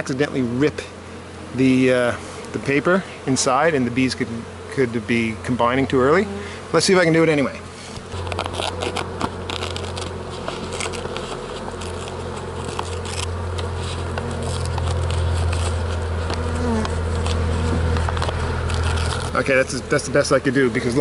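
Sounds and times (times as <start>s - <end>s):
honeybees buzzing: 0.0s - 21.0s
newspaper crackling and ripping: 8.1s - 19.6s.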